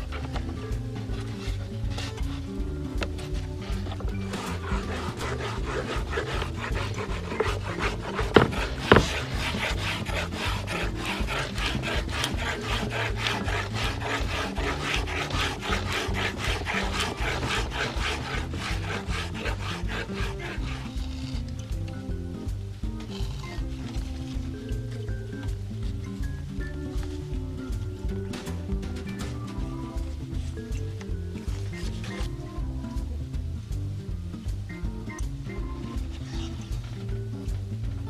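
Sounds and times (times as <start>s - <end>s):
background music: 0.0s - 38.0s
sandpaper scrubbing on wood: 1.2s - 21.5s, 31.5s - 32.3s
sharp knocks: 4.3s - 14.2s.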